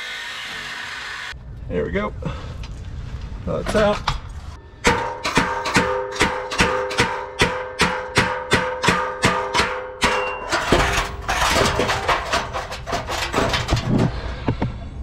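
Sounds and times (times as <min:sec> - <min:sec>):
hammer striking metal pipe: 0:04.8 - 0:11.2
metal pipe falling and clattering: 0:04.8 - 0:14.1.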